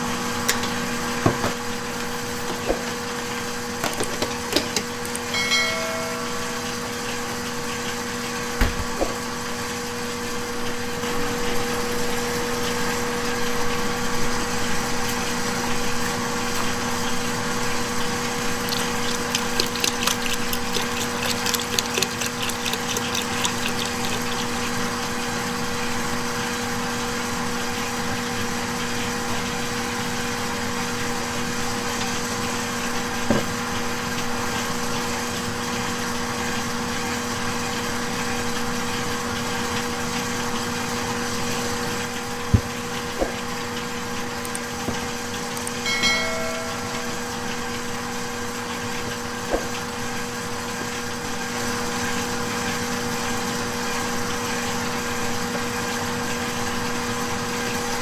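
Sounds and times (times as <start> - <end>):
mechanical hum: 0.0 - 58.0
rapid clicking: 18.7 - 24.7.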